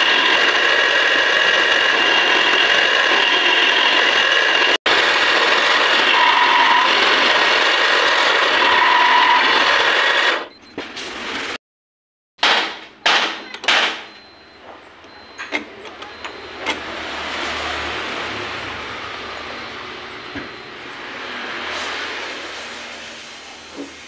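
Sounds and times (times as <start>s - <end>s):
milling machine cutting metal: 0.0s - 10.5s
sharp metallic knocks: 12.4s - 14.3s.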